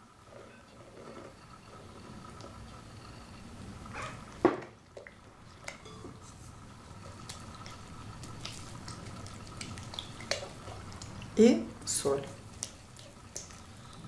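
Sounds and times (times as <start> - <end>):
glass clink: 5.8 - 6.3.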